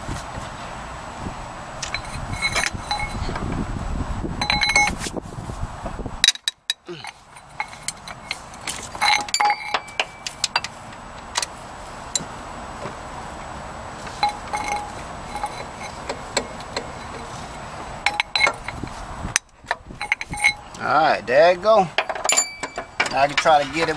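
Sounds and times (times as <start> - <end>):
steady background noise: 0.0 - 23.9
metal wrench clinking: 1.8 - 3.5, 4.4 - 5.0, 6.2 - 10.8, 14.1 - 20.8, 21.9 - 23.9.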